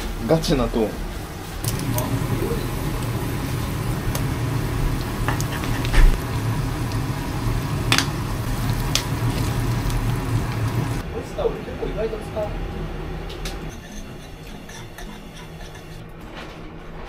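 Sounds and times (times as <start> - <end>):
steady low hum: 1.0 - 13.8
meat and greens frying in a pan: 1.6 - 11.0
spatula scraping and knocking pan: 5.0 - 6.3, 13.7 - 16.0.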